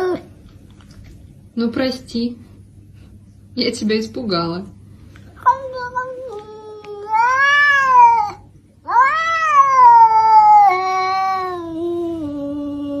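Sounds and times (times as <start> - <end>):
cat yowling: 5.5 - 13.0.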